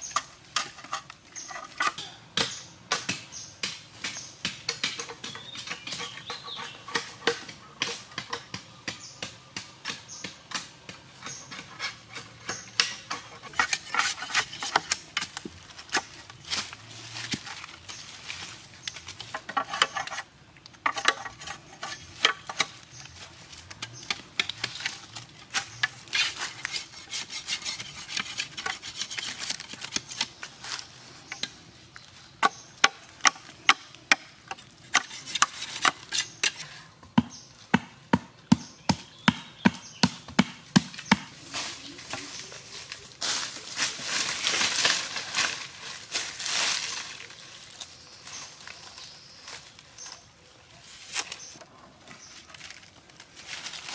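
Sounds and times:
scraping and rustling: 0.0s - 2.1s, 11.2s - 32.6s, 41.3s - 53.9s
machete chopping bamboo: 1.8s - 16.2s, 37.2s - 42.2s.

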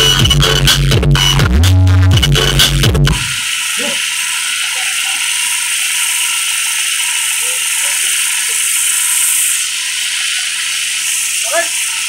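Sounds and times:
loud high hiss: 2.4s - 12.0s.

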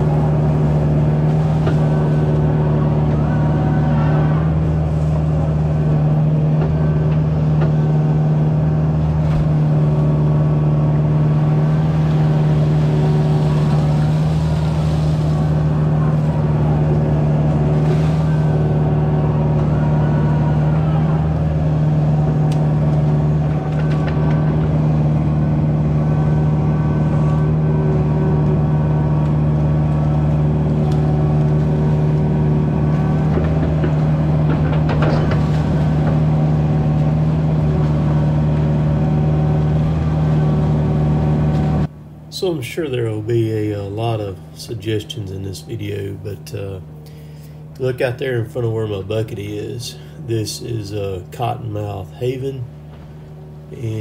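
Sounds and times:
water rushing: 0.0s - 41.5s
diesel engine running: 0.0s - 54.0s.

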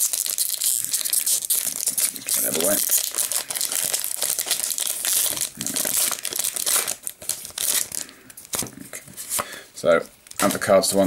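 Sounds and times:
foil wrapper crinkling and tearing: 0.0s - 8.8s.

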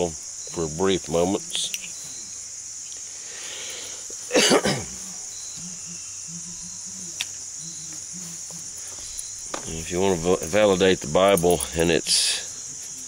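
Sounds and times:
crickets chirring: 0.0s - 13.0s
person coughing: 4.3s - 5.0s.

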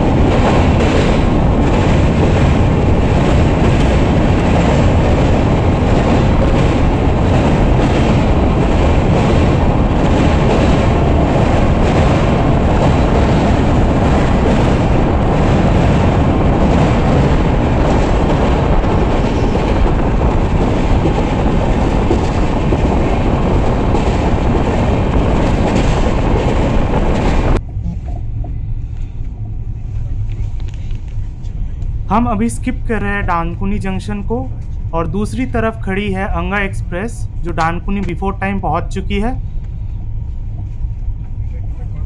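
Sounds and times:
wheels clattering over rail joints: 0.0s - 27.6s
train wheels rumbling on rail: 0.0s - 42.0s.

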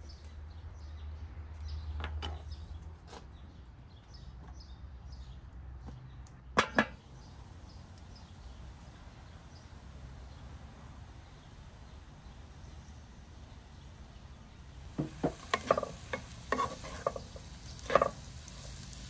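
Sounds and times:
kitchenware knocks: 15.0s - 15.9s.

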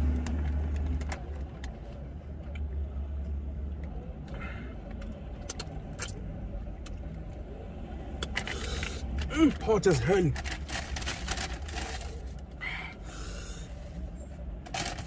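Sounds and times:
low rumble in car cabin: 0.0s - 15.0s
paper bag crinkling: 9.5s - 12.3s, 14.7s - 15.0s
hissing breath: 12.6s - 13.9s.

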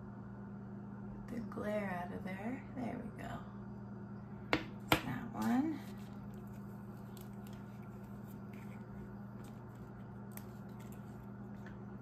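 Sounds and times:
steady low hum: 0.0s - 12.0s
plastic film crackling: 5.9s - 11.7s.

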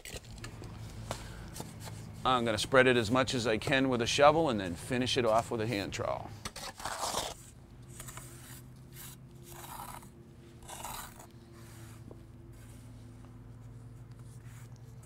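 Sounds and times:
shovel scraping wet mortar: 6.4s - 11.9s
trowel strokes: 6.5s - 13.0s.

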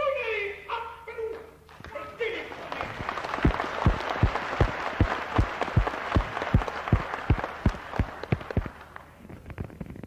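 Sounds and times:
rhythmic clapping beat: 1.3s - 9.1s
audience applauding: 1.7s - 9.2s.

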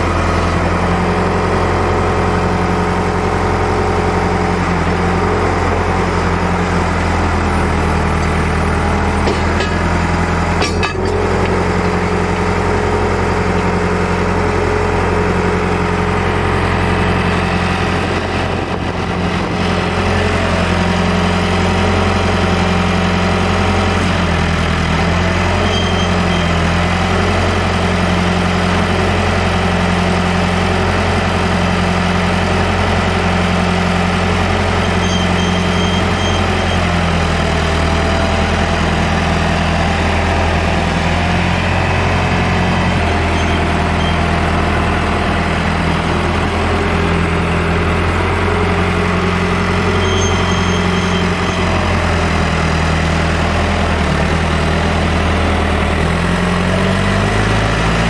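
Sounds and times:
backhoe engine running: 0.0s - 58.0s.

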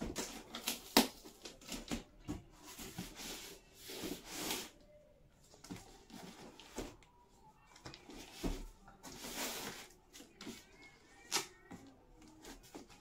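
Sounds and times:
cardboard and tape rustling: 0.0s - 13.0s.

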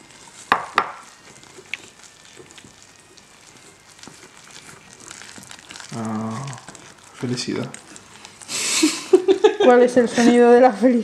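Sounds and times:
person humming: 5.9s - 6.8s.

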